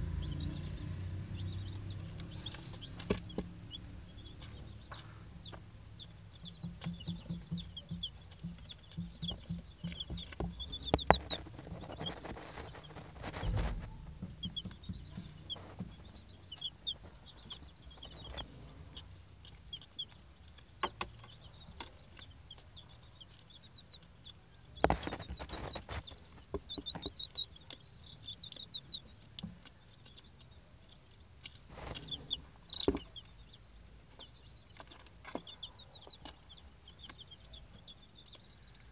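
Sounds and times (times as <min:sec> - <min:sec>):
chicks peeping: 0:00.0 - 0:38.9
rustling: 0:09.9 - 0:19.9, 0:24.8 - 0:27.1, 0:31.1 - 0:33.1.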